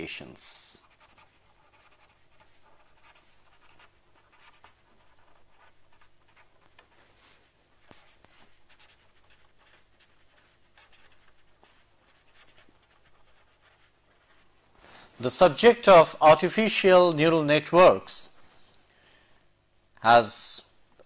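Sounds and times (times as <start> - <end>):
low electrical hum: 0.0 - 21.0
marker pen scratching paper: 0.8 - 7.2, 7.8 - 14.6.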